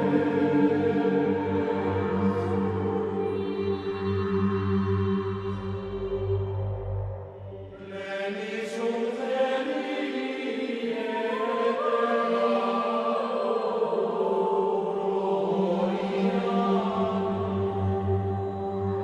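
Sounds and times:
steady low drone: 0.0 - 7.8, 16.8 - 19.0.

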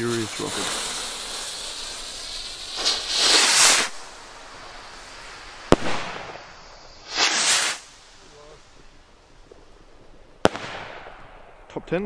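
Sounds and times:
firework rocket whooshing: 0.0 - 11.6
firework shell bang: 10.4 - 11.3.

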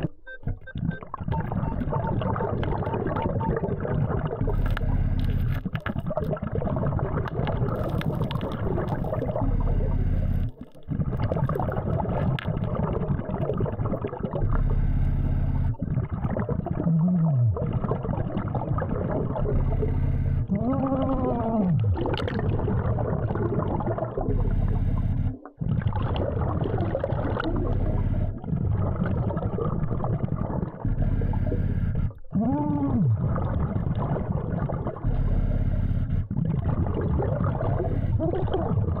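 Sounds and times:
regulator bubbling and breathing: 0.0 - 39.0
moaning tones: 20.5 - 22.0, 30.8 - 33.4
steady low hum: 30.4 - 34.0.

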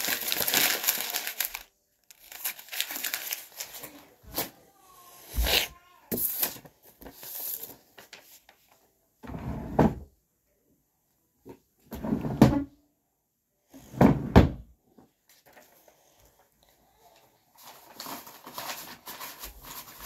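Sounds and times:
drawer sliding and knocking: 9.2 - 10.1, 11.9 - 12.7, 13.9 - 14.6.

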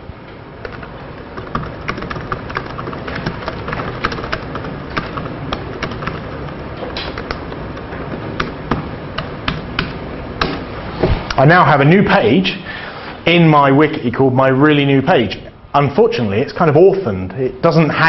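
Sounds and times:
keyboard typing: 0.6 - 10.6.

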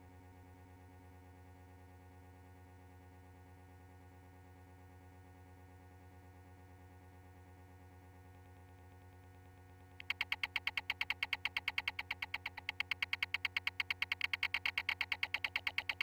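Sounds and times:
rapid high-pitched beeps: 10.0 - 16.0.

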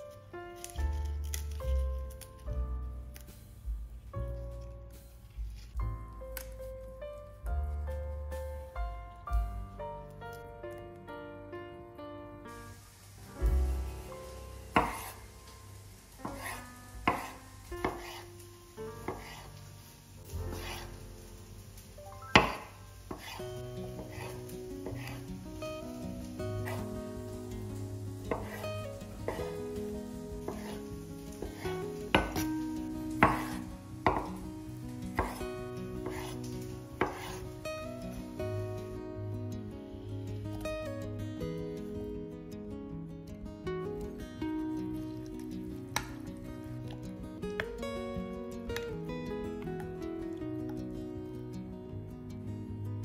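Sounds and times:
knife knocking on cutting board: 14.8 - 15.1, 33.2 - 34.4, 35.2 - 35.4
knife chopping on cutting board: 14.8 - 15.2, 16.2 - 18.3, 19.0 - 19.5, 20.5 - 20.9, 22.4 - 25.3, 26.6 - 26.9, 28.3 - 29.6, 30.4 - 34.4, 35.1 - 37.5.

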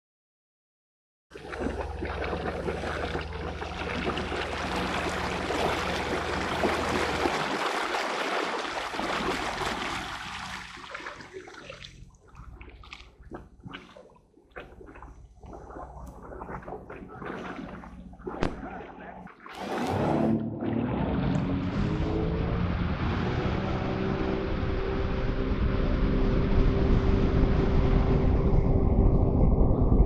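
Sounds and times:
water lapping and splashing: 1.3 - 22.2
water rushing along hull: 1.3 - 28.8
jet ski engine hum: 1.4 - 13.6, 15.2 - 29.9.

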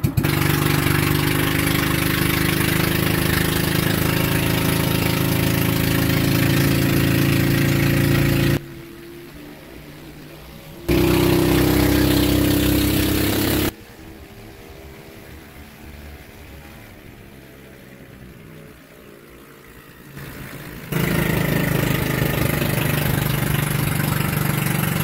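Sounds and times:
boat engine running: 0.0 - 25.0.

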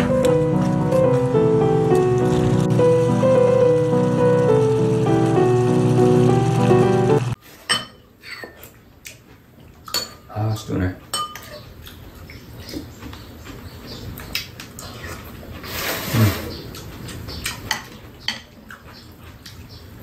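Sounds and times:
background music: 0.0 - 7.4
utensils clinking against bowls: 9.9 - 11.7.

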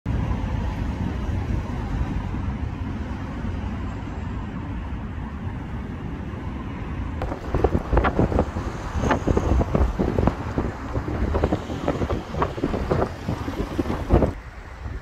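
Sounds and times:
storm wind buffeting microphone: 5.8 - 15.0.

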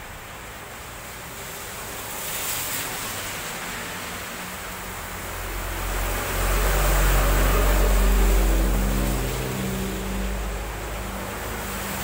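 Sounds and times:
tyres hissing on wet road: 0.0 - 12.0
truck rumbling: 5.2 - 12.0.

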